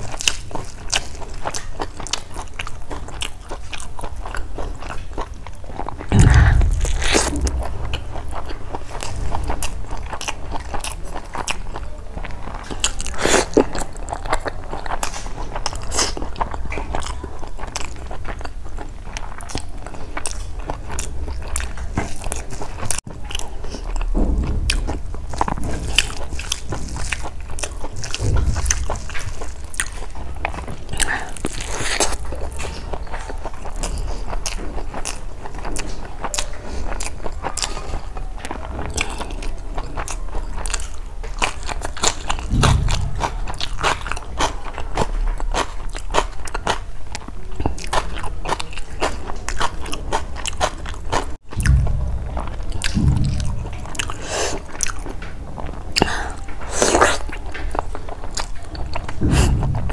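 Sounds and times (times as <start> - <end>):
chewing with wet smacking: 0.0 - 59.9
crunching: 0.0 - 59.9
low thuds: 6.1 - 10.6, 23.9 - 27.2, 28.1 - 29.6, 42.1 - 44.8, 51.5 - 55.7, 59.0 - 59.9.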